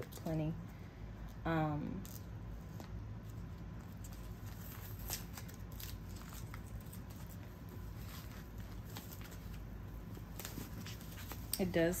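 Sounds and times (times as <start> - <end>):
paper wrapping rustling and crinkling: 2.7 - 12.0.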